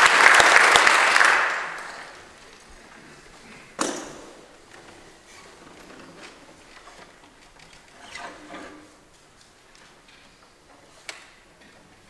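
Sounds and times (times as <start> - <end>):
audience applause: 0.0 - 2.4.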